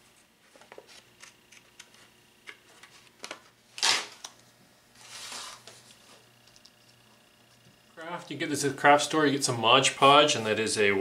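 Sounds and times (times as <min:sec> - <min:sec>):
hobby knife scoring paper: 0:05.0 - 0:05.7
paper rustling: 0:05.0 - 0:06.2.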